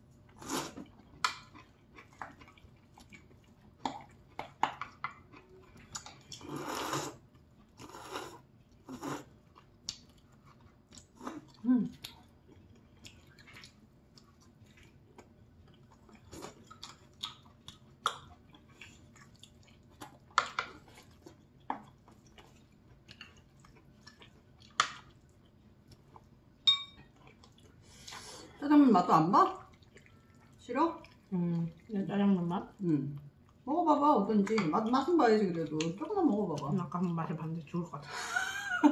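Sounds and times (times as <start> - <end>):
noodles slurped and chewed: 0.3 - 26.4.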